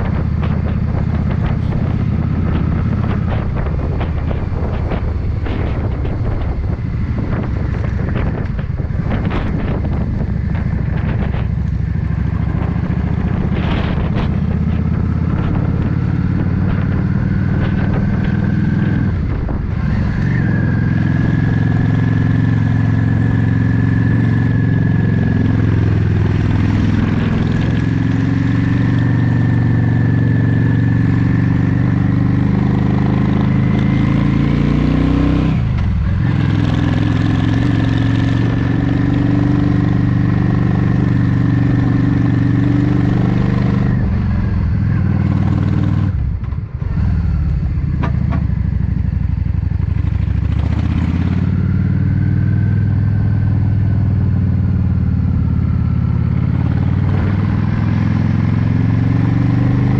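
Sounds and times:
wind buffeting microphone: 0.0 - 59.6
motorcycle engine running: 0.0 - 59.9.

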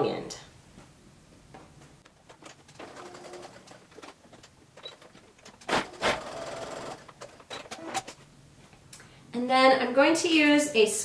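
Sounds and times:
sewing machine stitching: 2.2 - 8.2.

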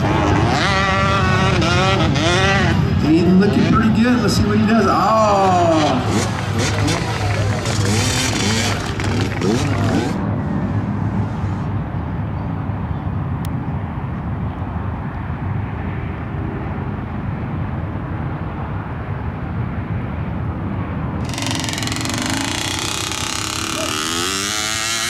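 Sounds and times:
motorcycle engine running: 5.7 - 11.6, 21.2 - 25.0.

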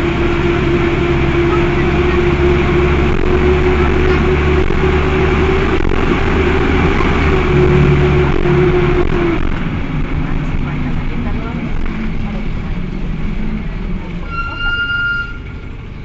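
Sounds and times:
diesel engine hum: 0.0 - 16.0.

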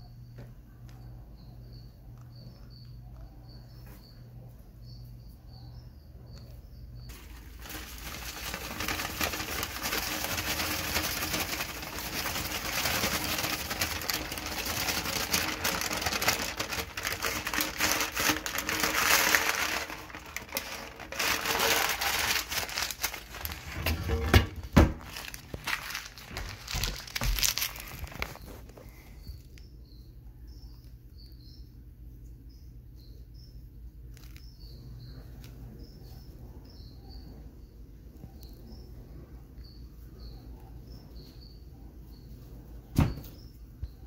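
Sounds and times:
crickets chirping: 0.0 - 31.7
paper bag rustling: 7.1 - 29.0.

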